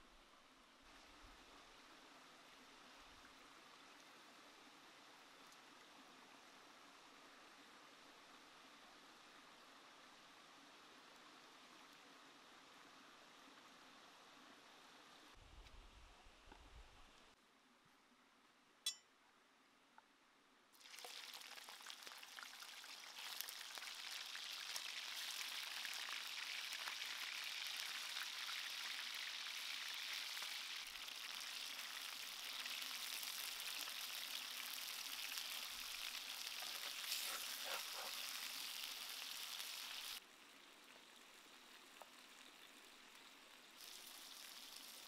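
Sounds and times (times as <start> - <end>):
chicken sizzling in hot oil: 20.8 - 40.2, 43.7 - 45.0.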